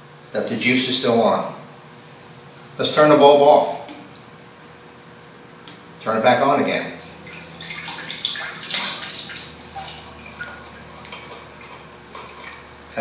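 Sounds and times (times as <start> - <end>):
water dripping: 7.2 - 12.9
water splashing in tank: 7.2 - 13.0.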